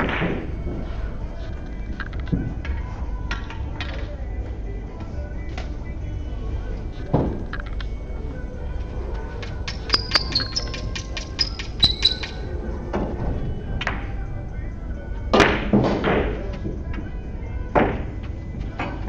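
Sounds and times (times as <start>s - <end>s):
billiard balls rolling: 0.0s - 4.2s, 6.8s - 14.2s
billiard balls clicking together: 9.4s - 12.6s.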